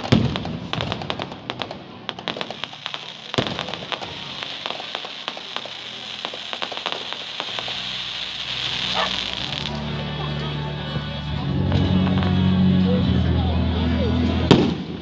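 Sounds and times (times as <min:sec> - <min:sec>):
fireworks crackling pops: 0:00.0 - 0:09.8, 0:14.5 - 0:15.0.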